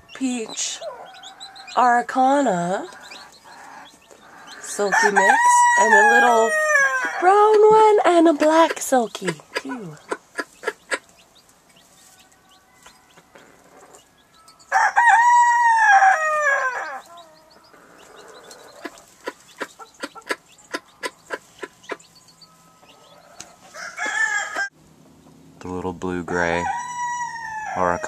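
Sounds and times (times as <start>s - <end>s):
rooster crowing: 3.6s - 7.4s, 12.2s - 18.4s, 22.6s - 24.7s, 26.3s - 28.0s.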